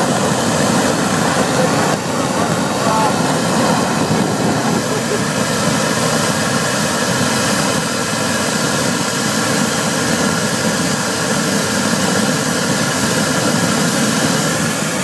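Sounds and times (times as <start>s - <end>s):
engine drone: 0.0s - 15.0s
water jet hissing: 0.0s - 15.0s.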